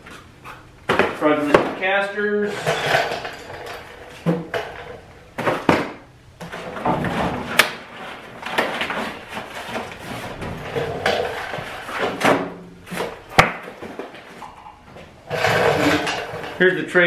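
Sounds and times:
cardboard scraping against metal: 15.2s - 16.6s.

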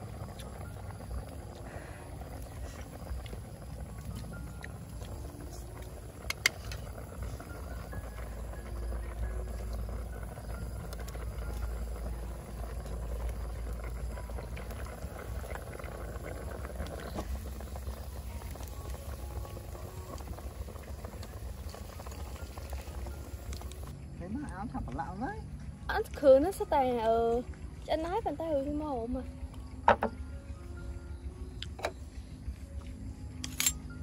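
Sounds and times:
soup boiling and bubbling: 0.0s - 34.0s.

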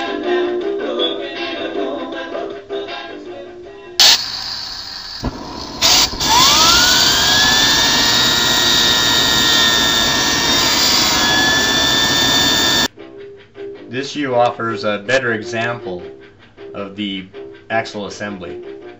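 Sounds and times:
jet engine blasts: 4.0s - 12.9s
jet engine rushing roar: 4.0s - 12.9s
jet engine whine: 4.0s - 12.9s.

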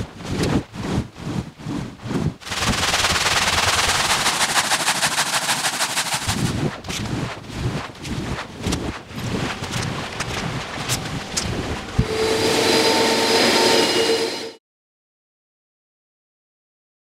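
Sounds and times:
brush scrubbing foamy rug: 0.8s - 12.0s.

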